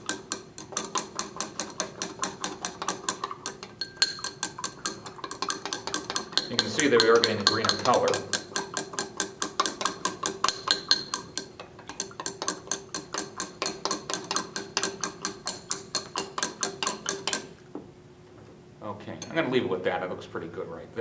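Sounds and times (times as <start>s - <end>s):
glass rod clinking in beaker: 2.0s - 17.5s.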